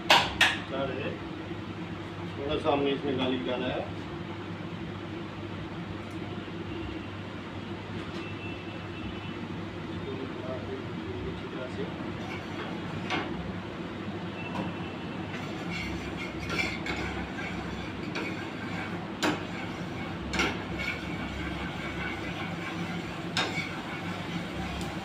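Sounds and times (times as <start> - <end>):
gas burner and exhaust hood rumble: 0.0 - 25.0.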